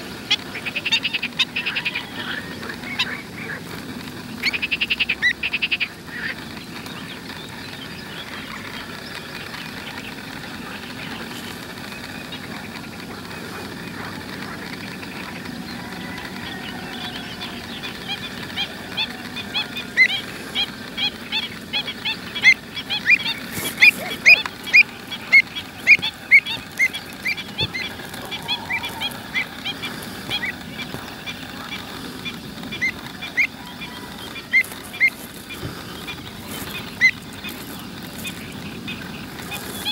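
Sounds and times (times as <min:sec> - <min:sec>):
sharp bird calls: 0:00.0 - 0:39.9.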